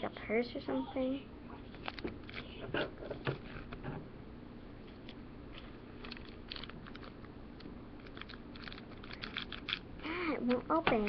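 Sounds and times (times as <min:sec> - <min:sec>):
plastic packaging crinkling: 0:01.7 - 0:02.6, 0:05.6 - 0:07.3, 0:08.0 - 0:09.9.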